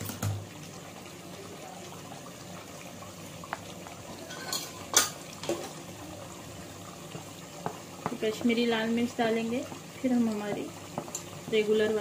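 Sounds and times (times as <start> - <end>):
metal utensils clinking on dishes: 4.2 - 5.8.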